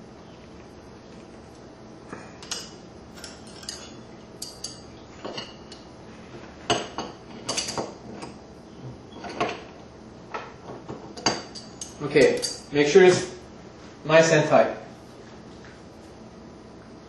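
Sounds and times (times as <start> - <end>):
metallic clicks and clinks: 11.4 - 12.7.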